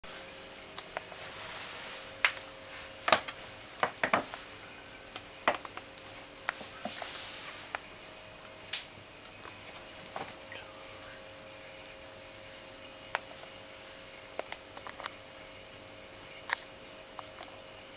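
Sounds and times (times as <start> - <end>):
faint steady hum: 0.0 - 17.9.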